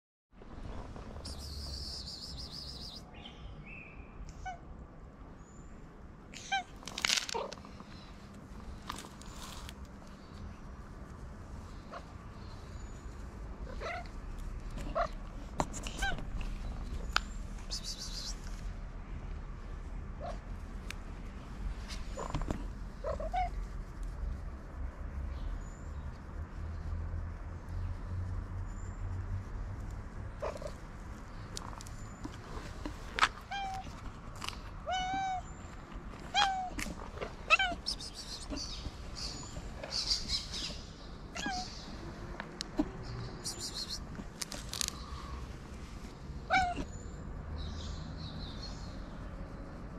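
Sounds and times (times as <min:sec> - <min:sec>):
low steady rumble: 0:04.7 - 0:43.4
cat meowing: 0:33.4 - 0:33.9, 0:34.8 - 0:35.5, 0:36.3 - 0:36.8, 0:37.5 - 0:38.6, 0:41.3 - 0:41.8, 0:46.5 - 0:46.9.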